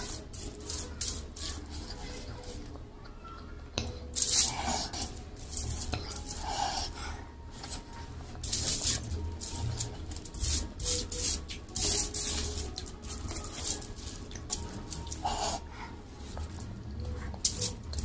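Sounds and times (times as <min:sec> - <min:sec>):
foil crinkling: 0:04.1 - 0:06.4, 0:07.7 - 0:15.3.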